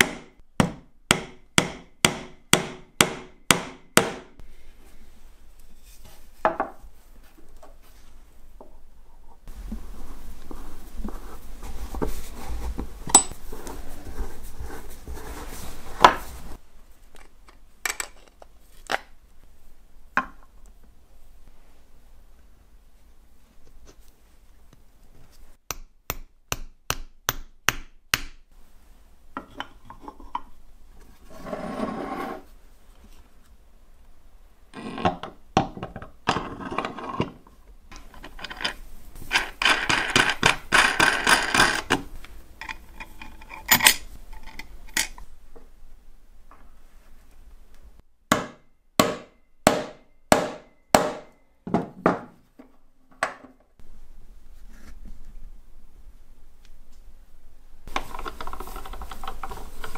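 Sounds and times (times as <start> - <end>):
rubbing or scraping: 9.4 - 16.6, 31.0 - 33.3.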